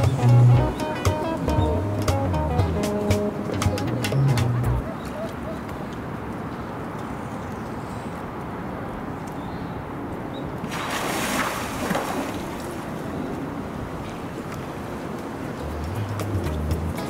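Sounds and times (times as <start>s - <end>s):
water splashing: 10.6s - 16.8s.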